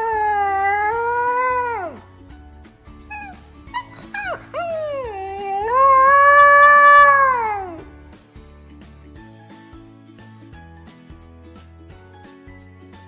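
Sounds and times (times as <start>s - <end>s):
puppy howling: 0.0s - 2.0s, 3.1s - 7.8s
background music with steady beat: 0.0s - 13.0s
puppy high calls: 3.1s - 7.8s.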